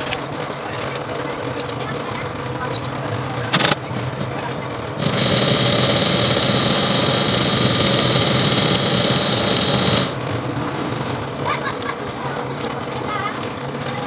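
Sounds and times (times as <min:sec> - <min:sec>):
coil-winding machine whirring: 0:00.4 - 0:11.4.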